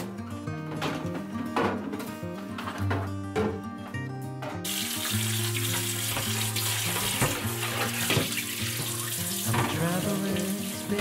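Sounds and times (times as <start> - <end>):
faucet water splashing in sink: 4.6 - 11.0.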